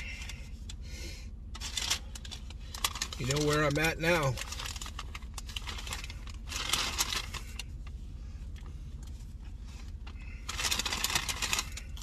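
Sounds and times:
paper bag rustling: 0:01.6 - 0:07.6, 0:10.2 - 0:12.0.

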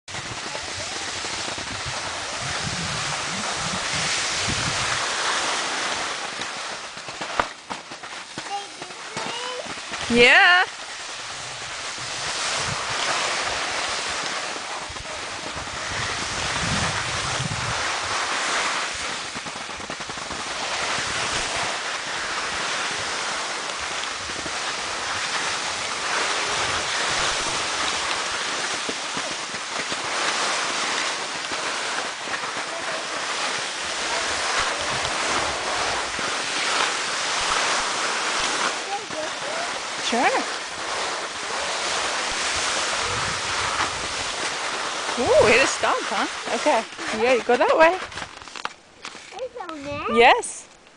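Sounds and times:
wind buffeting microphone: 0:00.1 - 0:05.4, 0:11.2 - 0:18.2, 0:38.8 - 0:44.5, 0:45.1 - 0:48.3
skis hissing over snow: 0:00.1 - 0:50.6.

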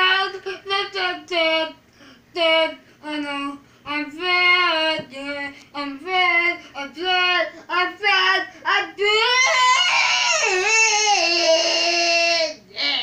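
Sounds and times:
child singing unaccompanied: 0:00.0 - 0:09.4.

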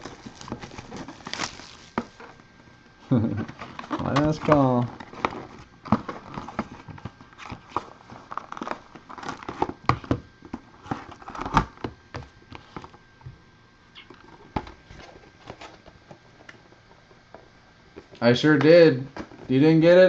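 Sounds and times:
card wrappers crinkling: 0:00.0 - 0:02.4, 0:03.6 - 0:11.9.

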